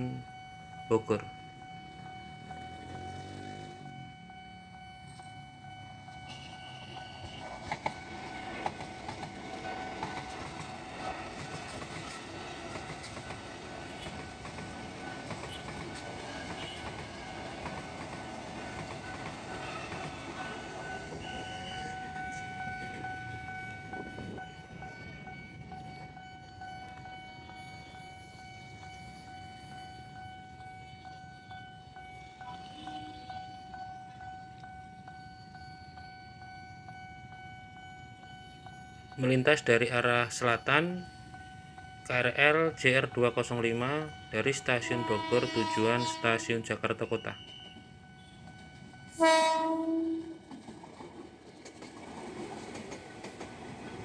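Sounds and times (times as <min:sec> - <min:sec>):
train wheels rumbling on rails: 0:06.1 - 0:36.5, 0:37.4 - 0:54.0
clicking over rail joints: 0:50.4 - 0:54.0.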